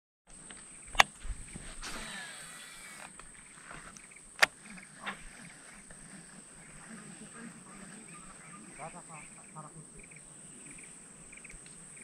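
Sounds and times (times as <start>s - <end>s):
steady high-pitched whine: 0.3s - 12.0s
fishing reel clicks: 1.9s - 3.2s.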